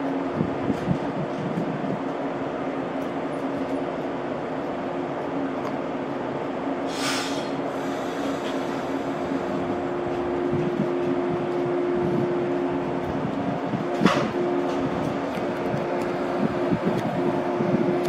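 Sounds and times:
electric train hum: 0:00.0 - 0:18.0
air hiss: 0:06.9 - 0:09.5
low rumble: 0:08.9 - 0:18.0.

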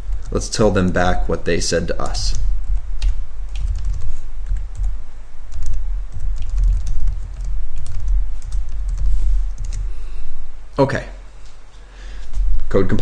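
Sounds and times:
typing on computer keyboard: 0:03.0 - 0:04.9, 0:05.5 - 0:09.8.

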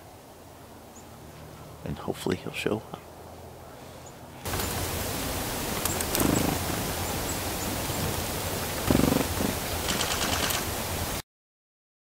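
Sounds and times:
songbirds chirping: 0:00.0 - 0:10.0
wind hissing: 0:03.2 - 0:11.2.

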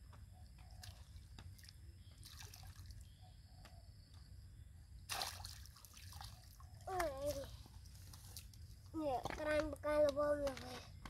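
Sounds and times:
muddy water dripping and trickling: 0:00.4 - 0:03.2, 0:05.1 - 0:10.9
water splash: 0:05.1 - 0:06.4.

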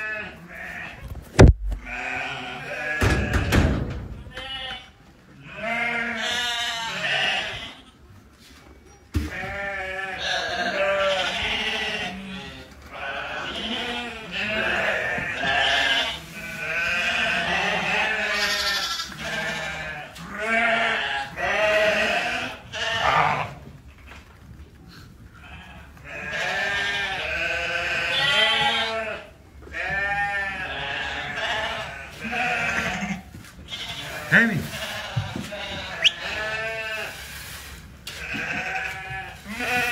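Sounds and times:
sheep and lambs bleating: 0:00.0 - 0:01.1, 0:01.8 - 0:03.6, 0:04.2 - 0:08.0, 0:09.2 - 0:23.7, 0:25.3 - 0:37.3, 0:38.1 - 0:39.9
sharp knock: 0:01.4 - 0:01.8.

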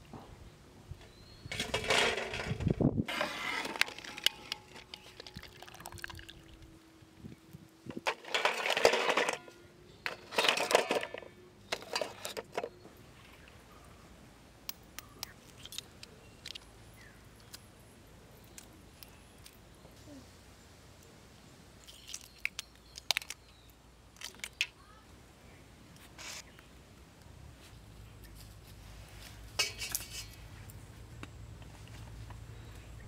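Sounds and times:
water splashing and dripping: 0:05.0 - 0:06.7.

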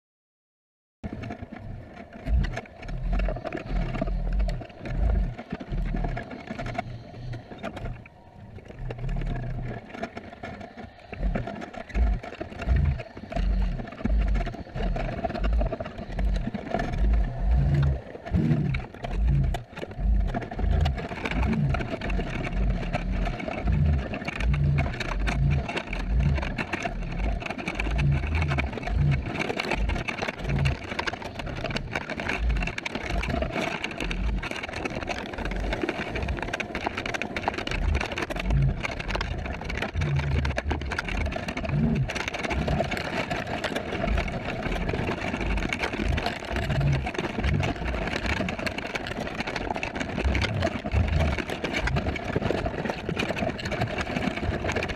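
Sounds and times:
eerie underwater hum: 0:01.5 - 0:34.5.

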